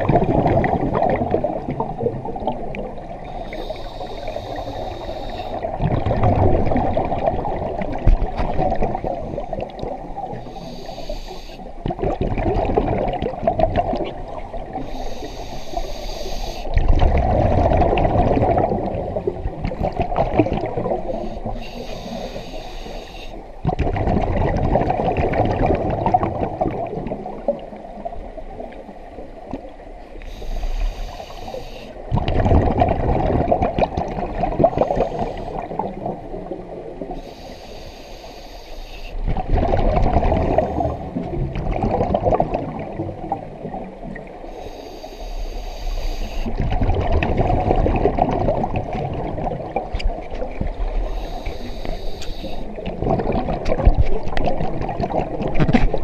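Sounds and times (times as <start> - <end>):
exhaled bubbles rumbling: 0.0 - 10.8, 11.7 - 15.0, 16.7 - 21.6, 23.6 - 30.2, 32.0 - 37.2, 39.2 - 44.5, 46.4 - 56.0
regulator inhale hiss: 3.2 - 5.7, 10.3 - 11.7, 14.7 - 16.8, 21.0 - 23.6, 30.2 - 32.0, 34.7 - 35.8, 37.1 - 39.2, 44.4 - 46.6, 50.9 - 52.8.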